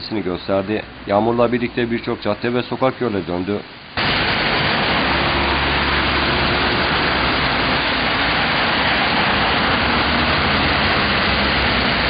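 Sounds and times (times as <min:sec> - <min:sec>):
heavy rain rushing: 0:03.7 - 0:12.0
vehicle engine running: 0:04.0 - 0:12.0.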